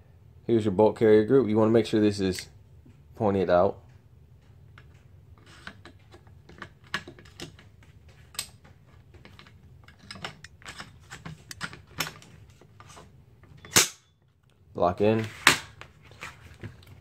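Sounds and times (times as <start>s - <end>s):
metal clicks and scrapes: 9.2s - 13.1s.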